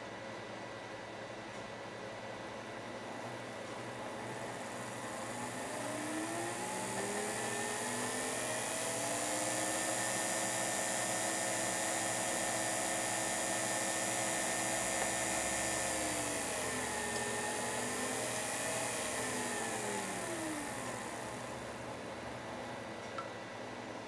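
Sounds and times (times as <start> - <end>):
small electric motor whine: 4.0 - 22.0.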